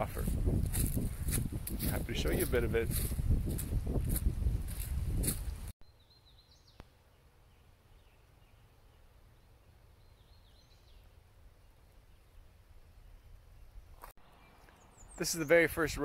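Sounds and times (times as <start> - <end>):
rushing noise on microphone: 0.0 - 5.7
faint high birdsong: 5.4 - 16.0.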